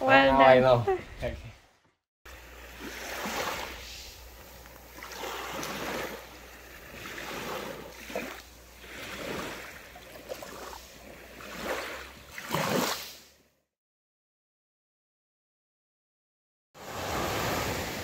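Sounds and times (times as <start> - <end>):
small waves washing onto shore: 2.3 - 13.4, 16.8 - 18.0.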